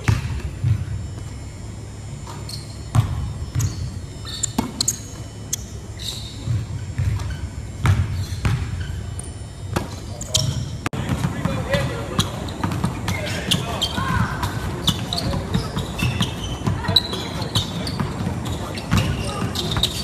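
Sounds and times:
sneaker squeaks: 0.0s - 20.0s
basketball bouncing on wooden floor: 2.9s - 3.9s, 6.4s - 8.9s.

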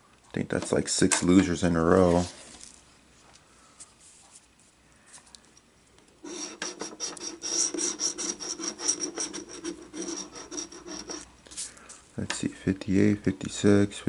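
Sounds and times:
lottery ticket being scratched: 6.2s - 11.6s.

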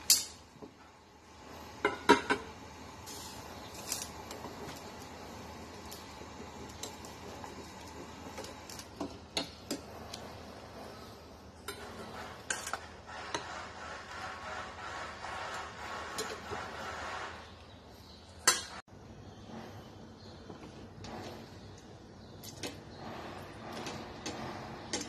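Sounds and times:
steady hiss: 1.3s - 8.6s.

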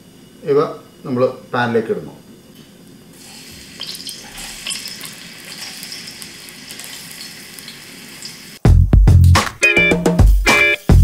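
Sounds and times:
vegetables sizzling in oil: 3.1s - 11.0s
background music with a beat: 8.6s - 11.0s.

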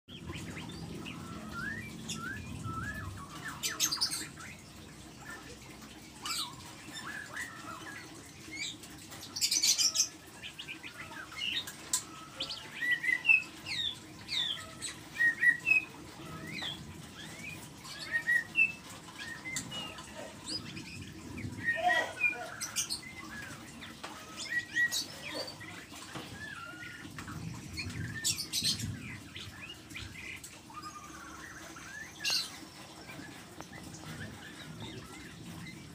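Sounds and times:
bird chirping and whistling: 0.4s - 4.5s, 12.2s - 20.0s.

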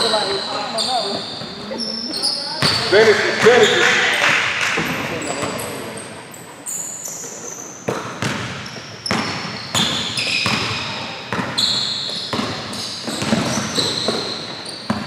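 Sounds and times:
sneakers squeaking on floor: 0.0s - 4.2s, 4.8s - 15.0s
basketball bouncing on wood floor: 2.6s - 3.0s, 7.9s - 11.6s, 12.3s - 14.3s.

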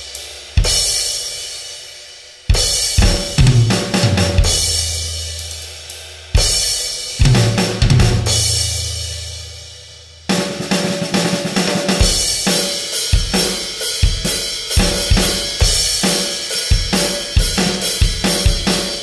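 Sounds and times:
drum kit hits: 2.6s - 5.2s, 7.2s - 9.5s.

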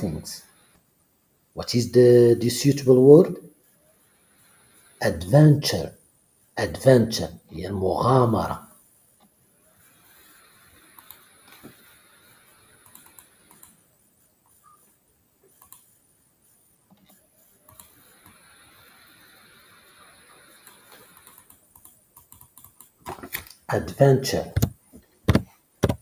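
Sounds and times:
keyboard and mouse clicks: 12.8s - 13.8s, 15.6s - 15.9s, 20.6s - 23.6s.

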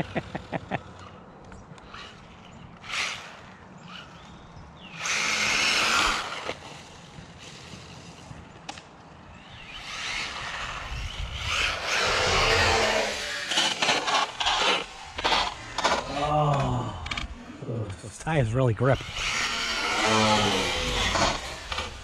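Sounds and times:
rc truck motor and tyre noise: 0.0s - 22.0s.

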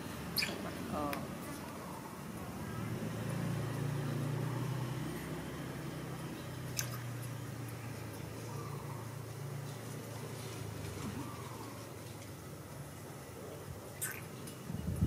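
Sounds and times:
engine hum: 0.0s - 15.0s.

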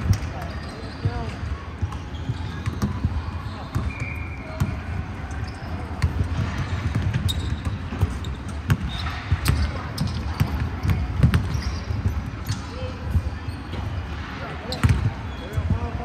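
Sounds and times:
basketball bouncing on hardwood floor: 6.0s - 12.6s.

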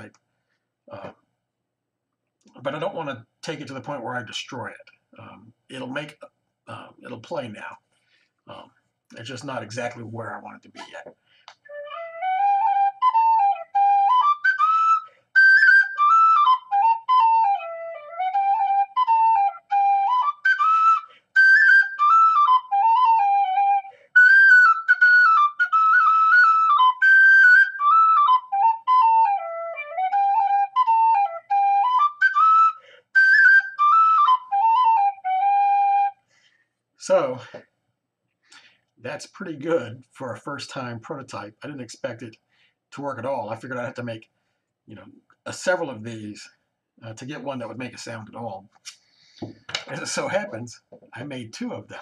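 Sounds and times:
tin whistle melody: 11.6s - 36.3s.

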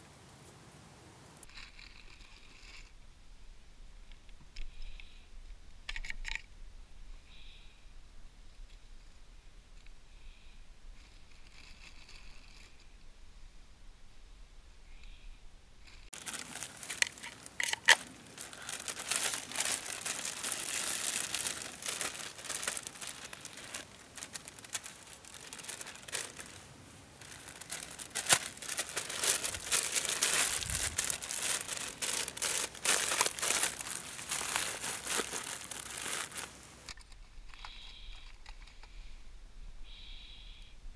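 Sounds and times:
plastic bag crinkling: 1.4s - 2.9s, 11.0s - 12.9s, 15.8s - 38.8s.

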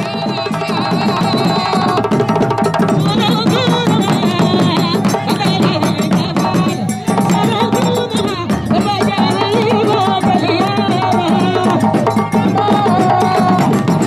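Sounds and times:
fast hand drumming: 0.0s - 14.0s.

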